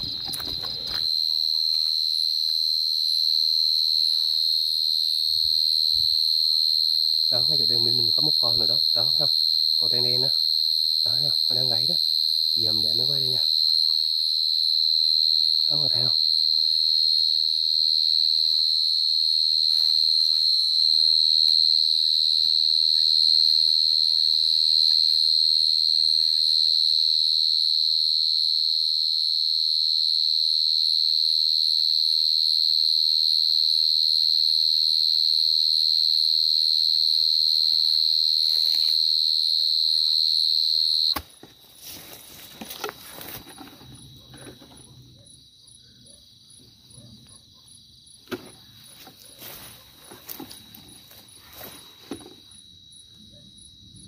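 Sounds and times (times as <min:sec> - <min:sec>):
cricket trilling: 0:00.0 - 0:54.0.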